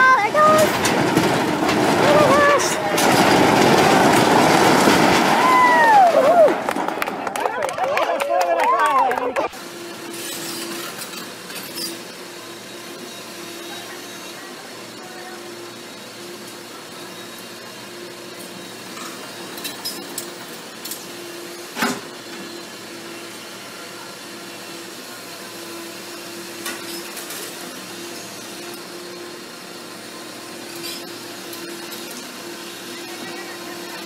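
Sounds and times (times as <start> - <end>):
excavator engine and hydraulic hum: 0.0 - 34.0
concrete debris knocking and crashing: 0.2 - 7.2.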